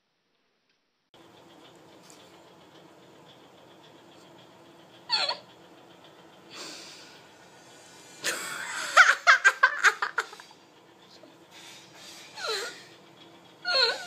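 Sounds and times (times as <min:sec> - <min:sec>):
person laughing in bursts: 0:08.2 - 0:10.6.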